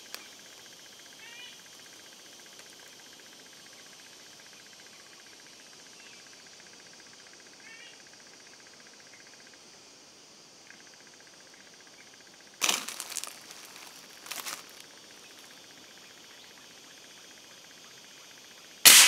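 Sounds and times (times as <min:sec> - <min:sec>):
rustling: 0:12.6 - 0:15.6.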